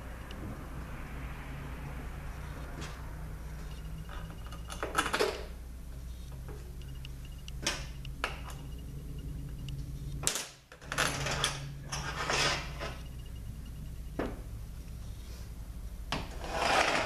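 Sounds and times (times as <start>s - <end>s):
steady low hum: 0.0s - 4.9s, 5.5s - 16.4s.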